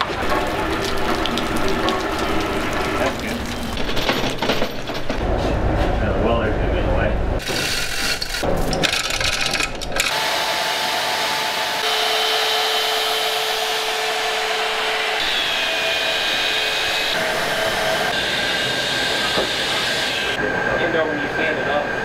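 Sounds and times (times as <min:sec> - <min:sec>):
band saw cutting metal: 0:10.1 - 0:20.4.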